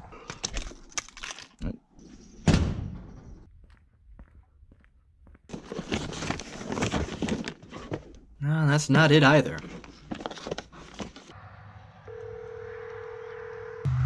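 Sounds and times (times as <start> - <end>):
footsteps: 3.4 - 5.9
rustling: 5.5 - 8.2, 9.5 - 11.3.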